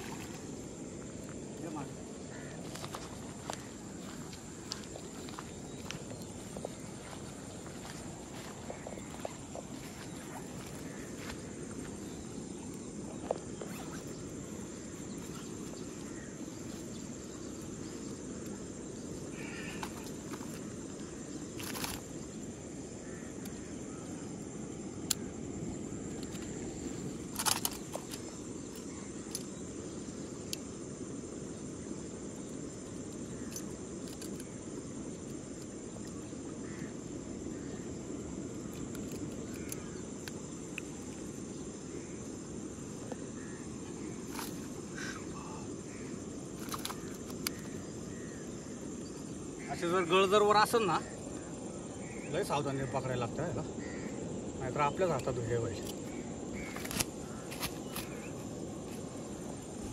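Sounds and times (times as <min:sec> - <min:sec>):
insects droning: 0:00.0 - 0:59.9
sharp clicks and rustles: 0:21.6 - 0:22.1, 0:27.2 - 0:29.5, 0:46.6 - 0:47.7.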